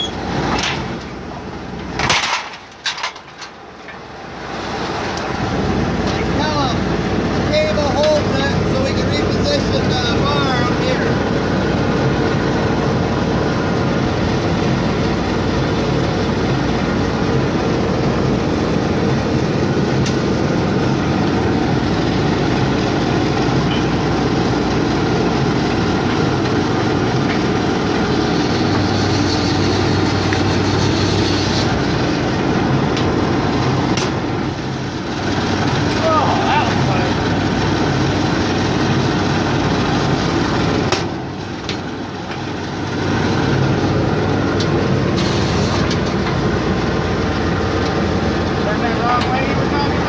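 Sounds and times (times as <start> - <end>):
engine running steadily: 0.0 - 50.0.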